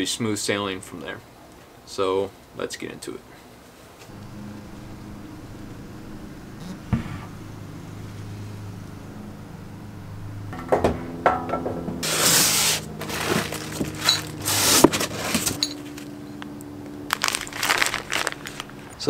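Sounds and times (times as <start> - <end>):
cardboard and plastic bag rustling: 12.0 - 16.2, 16.8 - 19.0.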